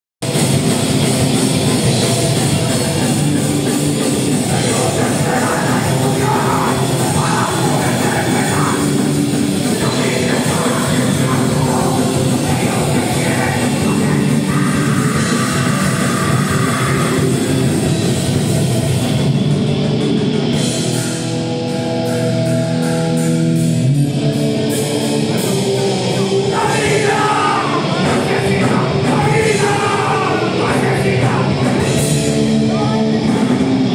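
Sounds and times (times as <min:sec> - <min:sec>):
drums and cymbals: 0:00.2 - 0:33.9
electric guitar chords: 0:00.2 - 0:33.9
live punk band playing: 0:00.2 - 0:33.9
person shouting vocals: 0:04.5 - 0:09.0, 0:26.5 - 0:31.6.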